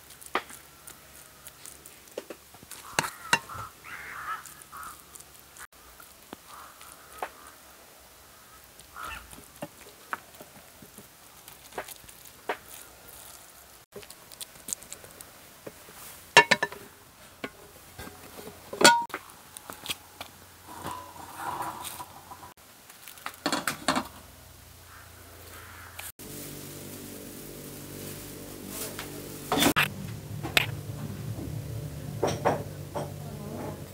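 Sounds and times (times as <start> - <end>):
metal spoon scraping a pan: 2.7 - 5.0, 16.4 - 19.1, 20.6 - 22.6
poultry calling: 2.7 - 5.7, 6.4 - 9.6, 24.8 - 26.1
soft music: 26.2 - 33.9.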